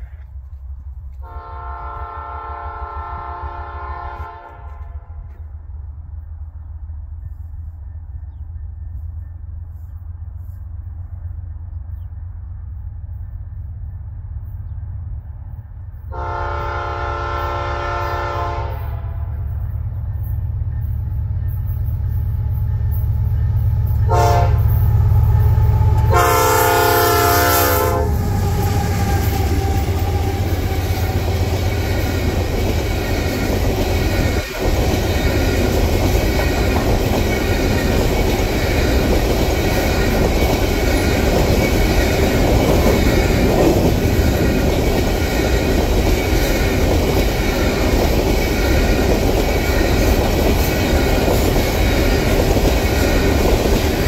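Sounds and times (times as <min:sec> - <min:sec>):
locomotive air horn: 0:01.2 - 0:05.3, 0:16.1 - 0:19.4, 0:24.1 - 0:24.8, 0:25.4 - 0:30.8
train wheels clickety-clack: 0:15.5 - 0:54.0
locomotives rumbling: 0:24.6 - 0:54.0.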